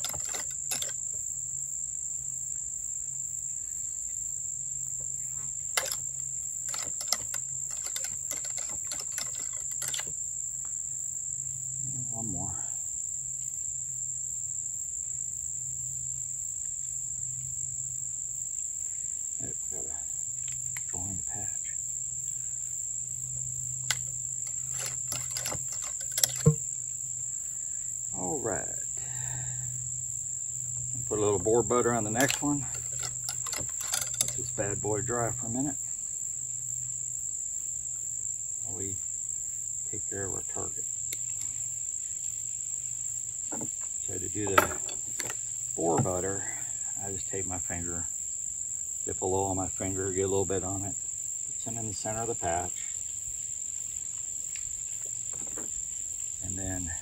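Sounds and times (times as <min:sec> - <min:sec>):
insects trilling: 0:00.0 - 0:57.0
cleaning rod knocking in barrel: 0:44.4 - 0:46.2.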